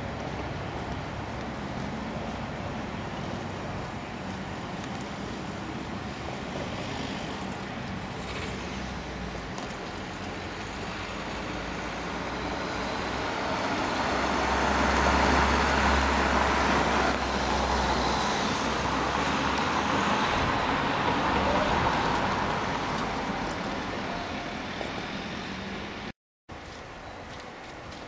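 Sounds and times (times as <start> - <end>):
vehicle passing by: 4.9 - 26.1.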